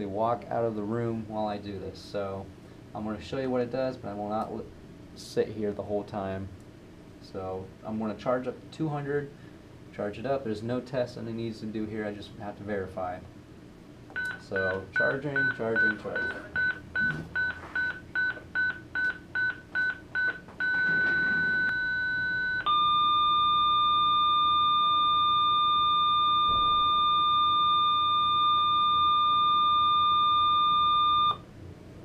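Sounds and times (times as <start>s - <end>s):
low continuous charge tone: 0.0s - 32.0s
short beeps: 14.2s - 31.4s.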